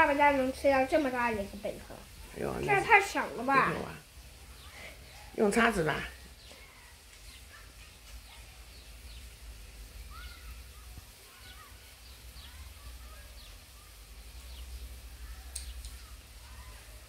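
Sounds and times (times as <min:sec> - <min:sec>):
birds chirping: 0:00.0 - 0:17.0
small click: 0:15.5 - 0:16.0.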